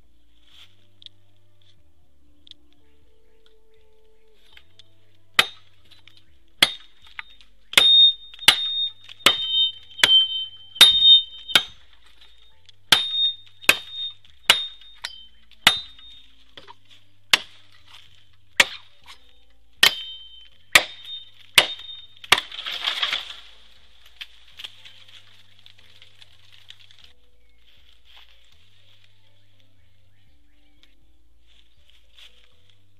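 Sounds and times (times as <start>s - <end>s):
bamboo crackling and rustling: 0.0s - 32.9s
machete chopping bamboo: 5.4s - 12.3s, 12.9s - 19.2s, 19.8s - 23.5s
blade ringing: 5.4s - 16.3s.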